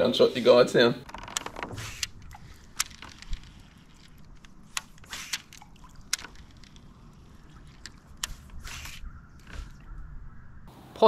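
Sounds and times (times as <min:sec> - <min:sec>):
fishing reel clicking: 0:01.0 - 0:09.2
water lapping against kayak: 0:01.1 - 0:10.6.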